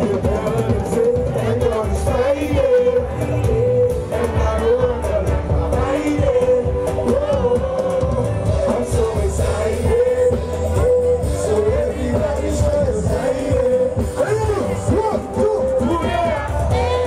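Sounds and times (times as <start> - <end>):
bass-heavy pop beat: 0.0 - 17.0
person singing: 0.0 - 17.0.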